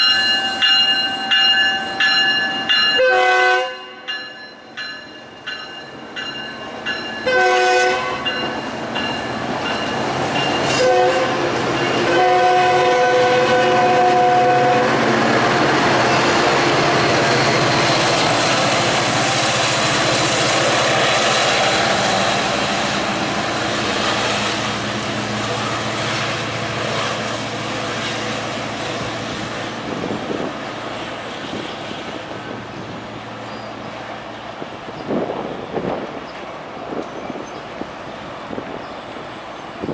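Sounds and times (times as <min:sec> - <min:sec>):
diesel train rumbling past: 0:00.0 - 0:39.9
train horn blasts: 0:03.0 - 0:04.2, 0:07.2 - 0:08.4, 0:10.7 - 0:15.0.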